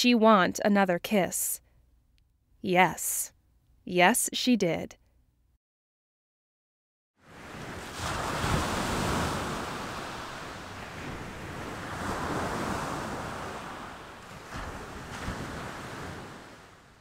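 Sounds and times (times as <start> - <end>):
ocean surf washing in: 7.2 - 17.0.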